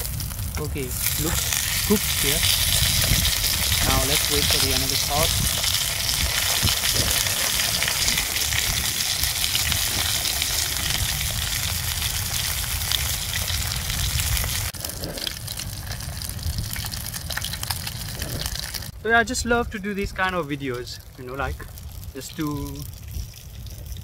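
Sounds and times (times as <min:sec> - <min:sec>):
fish sizzling in hot oil: 0:00.0 - 0:18.9.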